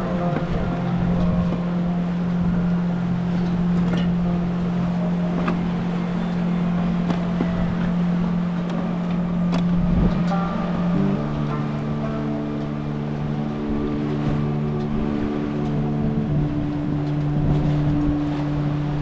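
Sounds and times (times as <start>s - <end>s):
music holding low note: 0.0s - 19.0s
river water rushing: 0.0s - 19.0s
wind on microphone: 0.0s - 19.0s.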